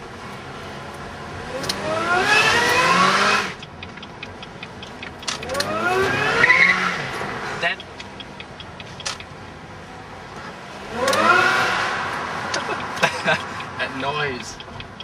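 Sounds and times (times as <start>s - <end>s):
car engine accelerating hard: 0.0s - 8.6s, 10.3s - 15.0s
light ticks: 3.6s - 5.7s, 7.8s - 9.5s, 12.5s - 15.0s.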